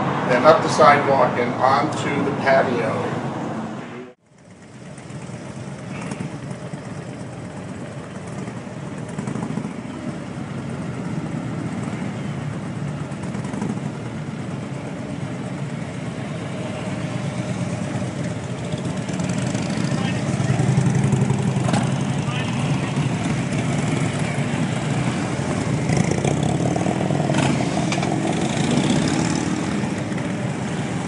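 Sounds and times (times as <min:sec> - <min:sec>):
motorcycle engines rumbling: 0:00.0 - 0:31.0.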